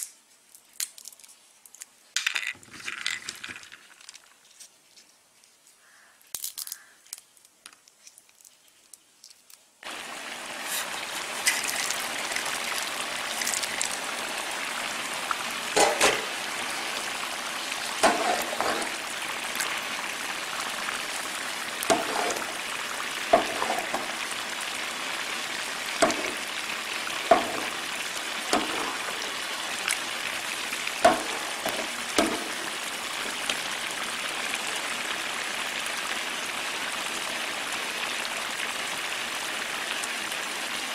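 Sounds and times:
food sizzling and bubbling: 9.8s - 40.9s
metal spoon knocking against pan: 21.9s - 22.5s, 23.3s - 24.2s, 26.0s - 26.4s, 27.3s - 27.8s, 28.6s - 29.2s, 31.0s - 32.6s.

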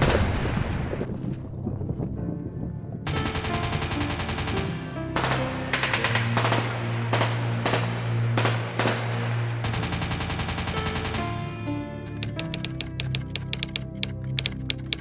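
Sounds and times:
low music drone: 0.4s - 15.0s
machine-gun fire: 3.1s - 9.0s, 9.6s - 11.4s.

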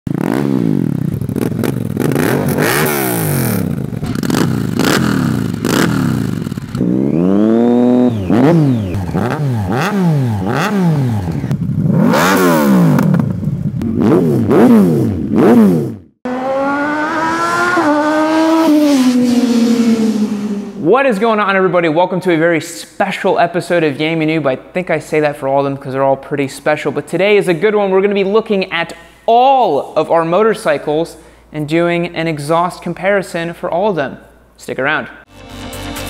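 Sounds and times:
motorcycle engine revving: 0.1s - 20.9s
held motorcycle engine note: 0.1s - 21.0s.

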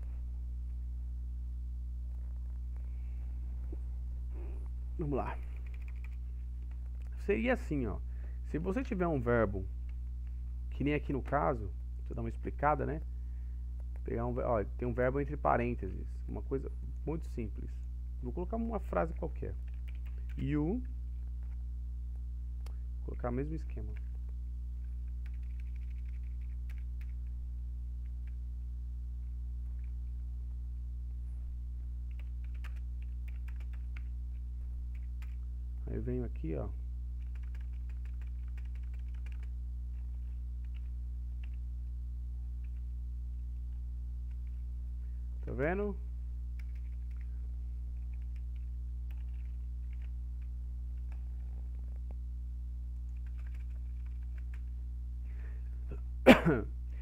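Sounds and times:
low electrical hum: 0.0s - 57.0s
typing on keyboard: 5.4s - 7.0s, 19.6s - 20.4s, 25.2s - 27.3s, 32.1s - 34.1s, 34.9s - 35.4s, 37.2s - 41.6s, 46.6s - 47.3s, 48.0s - 50.1s, 53.1s - 54.7s.

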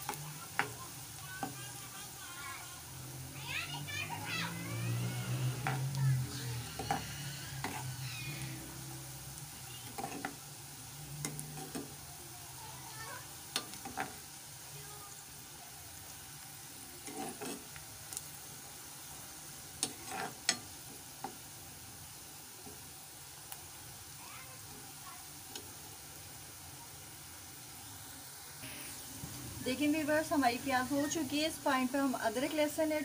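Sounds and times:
onions sizzling in oil: 0.0s - 33.0s
metal ladle scraping pan: 5.2s - 9.0s, 9.8s - 10.4s, 11.2s - 12.0s, 13.6s - 14.2s, 17.0s - 17.8s, 19.8s - 20.7s.

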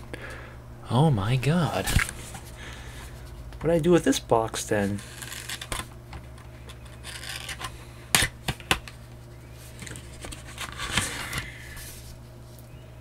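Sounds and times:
cardboard rubbing and scraping: 4.8s - 5.9s, 6.9s - 7.7s, 9.6s - 12.2s.

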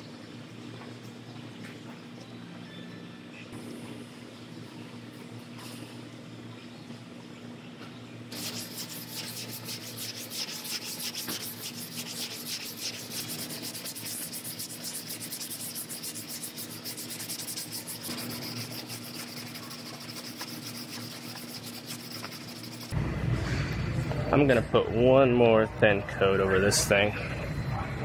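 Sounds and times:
hand sanding with sandpaper: 8.3s - 23.0s.

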